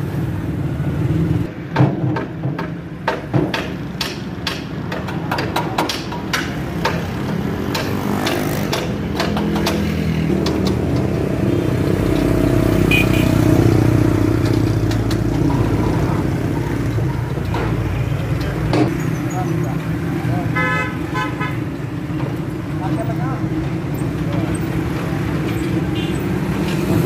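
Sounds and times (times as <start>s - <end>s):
street traffic: 0.0s - 27.0s.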